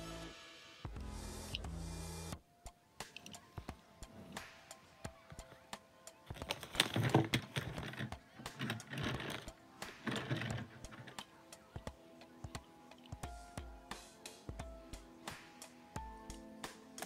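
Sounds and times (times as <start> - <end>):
faint background music: 0.0 - 17.0
toy car wheels rattling on plastic: 6.3 - 11.3.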